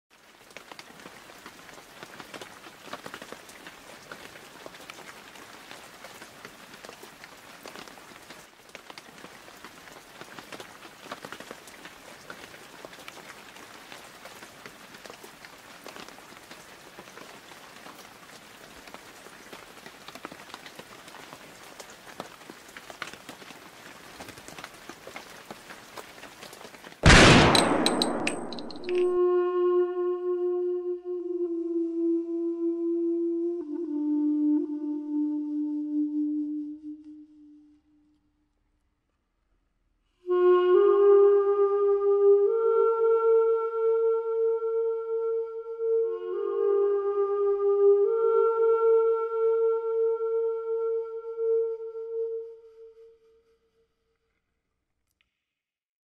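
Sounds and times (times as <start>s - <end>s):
rain-like patter: 0.1s - 29.3s, 40.3s - 53.0s.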